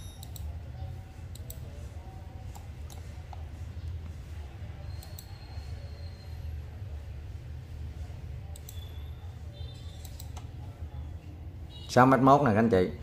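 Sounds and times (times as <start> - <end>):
steady low hum: 0.0 - 12.0
computer mouse clicking: 0.1 - 0.5, 1.3 - 1.7, 2.4 - 4.1, 4.9 - 5.7, 8.5 - 9.0, 9.8 - 10.6.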